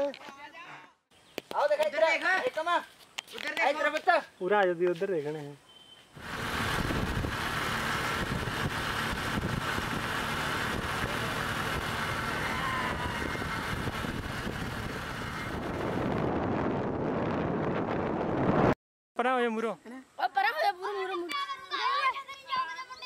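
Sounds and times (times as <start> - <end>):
tyre noise on road: 6.2 - 16.2
motorcycle engine running: 6.2 - 16.3
wind noise on microphone: 6.2 - 18.8.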